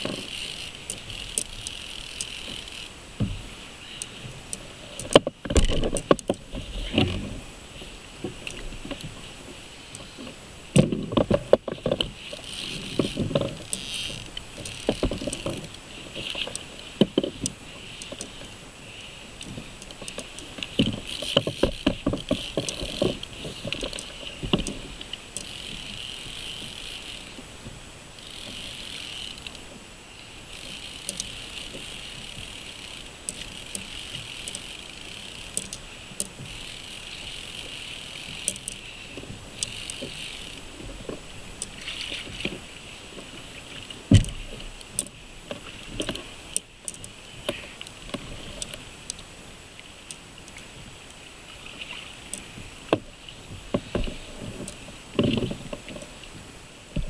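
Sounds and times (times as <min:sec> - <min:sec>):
water lapping against kayak hull: 0:00.0 - 0:57.0
fishing reel whirring: 0:00.1 - 0:05.1, 0:12.2 - 0:24.4, 0:25.1 - 0:27.4, 0:28.2 - 0:40.8.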